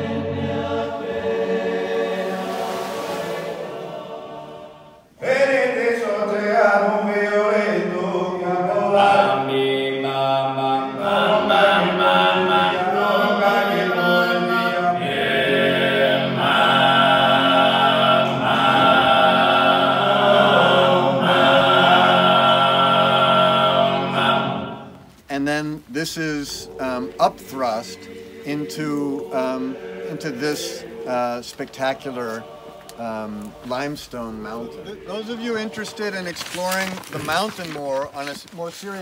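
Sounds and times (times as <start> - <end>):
male voices singing a cappella: 5.2 - 38.0.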